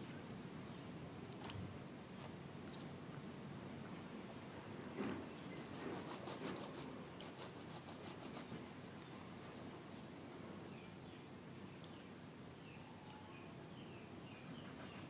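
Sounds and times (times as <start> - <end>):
knife sawing through bread crust: 5.7 - 8.8
faint bird chirps: 8.9 - 15.0.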